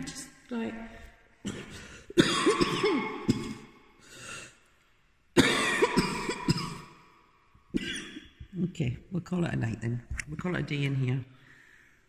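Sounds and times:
person coughing: 1.4s - 3.7s, 5.4s - 7.0s, 7.8s - 8.4s.

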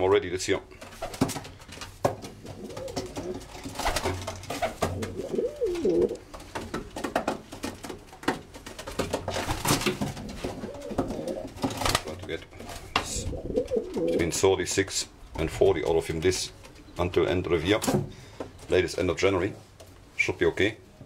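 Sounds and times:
pigeons cooing: 2.2s - 6.3s, 10.1s - 11.8s, 12.8s - 14.4s.

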